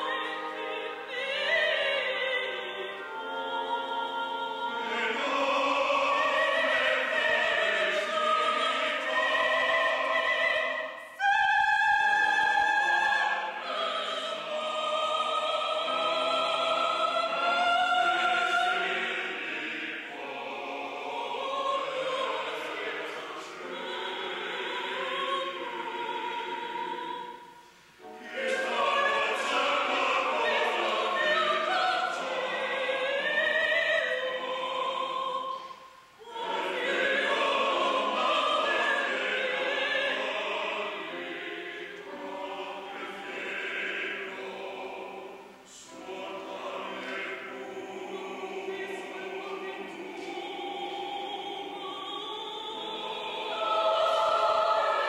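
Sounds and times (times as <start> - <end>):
choir singing in a reverberant hall: 0.0 - 55.0.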